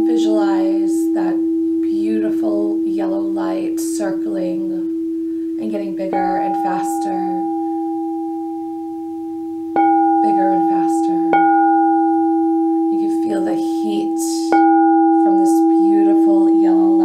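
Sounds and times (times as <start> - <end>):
crystal singing bowl ringing: 0.0 - 17.0
wand striking singing bowl: 6.0 - 17.0.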